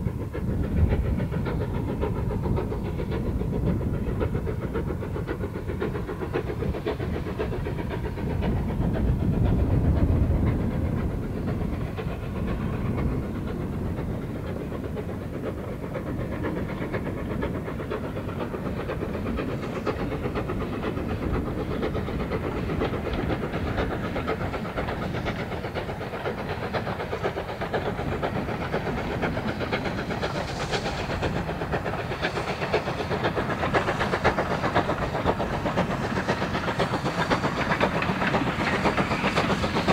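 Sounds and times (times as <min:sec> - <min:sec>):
steam locomotive exhaust beats: 0:00.0 - 0:39.9.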